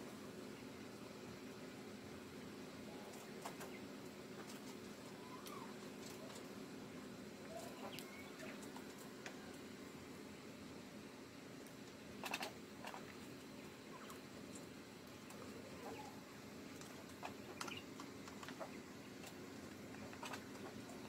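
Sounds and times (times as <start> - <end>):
quail pecking clicks: 3.0 - 6.6, 7.4 - 9.6, 11.6 - 21.0.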